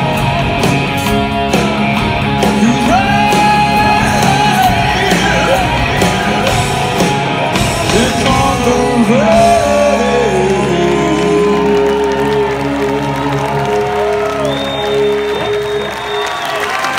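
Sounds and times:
guitar and bass chords: 0:00.0 - 0:16.4
drums: 0:00.0 - 0:16.9
person singing: 0:02.4 - 0:06.8, 0:07.6 - 0:14.2.

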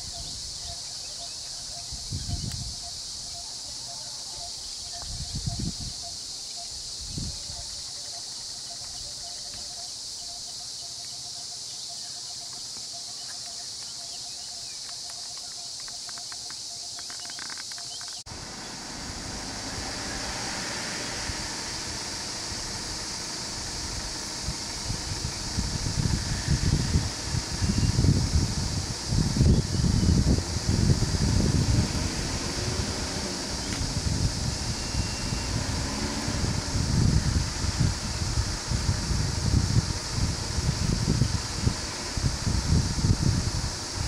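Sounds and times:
faint chirping call: 0:00.0 - 0:18.8, 0:34.6 - 0:35.7
insects buzzing: 0:00.0 - 0:44.0
low rumbles: 0:18.2 - 0:44.0.

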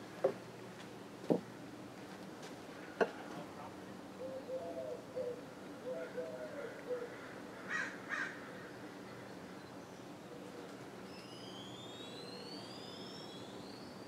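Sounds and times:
crow cawing: 0:07.0 - 0:08.7.

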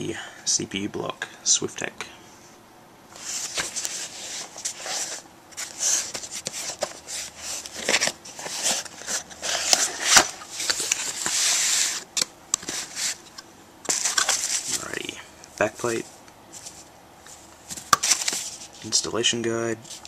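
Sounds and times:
cardboard box being opened: 0:03.2 - 0:12.0
packaging rustling: 0:03.2 - 0:15.0, 0:16.6 - 0:19.0.

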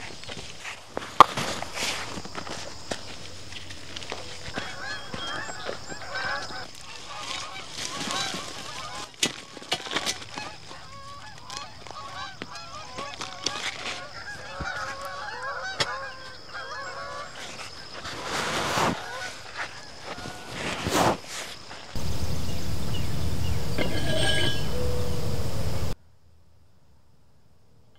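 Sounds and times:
flock of birds calling: 0:04.1 - 0:09.2, 0:10.3 - 0:18.1, 0:22.0 - 0:26.0.

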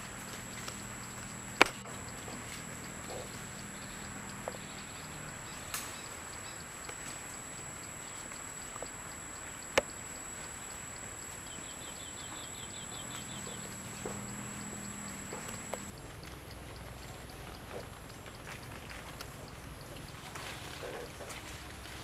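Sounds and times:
thin high-pitched whine: 0:00.0 - 0:16.0
sharp clicks: 0:00.0 - 0:21.2.

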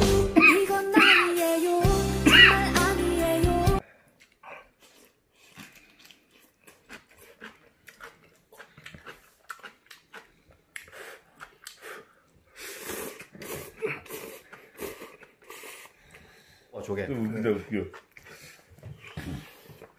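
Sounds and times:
chewing wet smacks: 0:04.1 - 0:12.5, 0:13.1 - 0:16.4, 0:17.1 - 0:19.9
person slurping noodles: 0:04.4 - 0:16.4, 0:17.3 - 0:19.9.

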